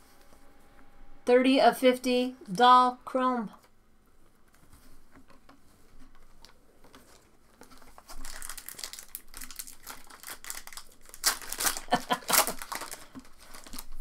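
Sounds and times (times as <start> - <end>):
wrapper crinkling and tearing: 6.3 - 14.0.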